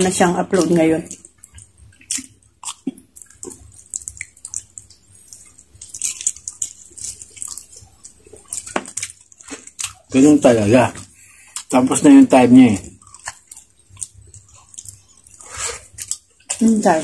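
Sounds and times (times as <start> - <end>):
wet chewing and smacking: 0.0 - 17.0.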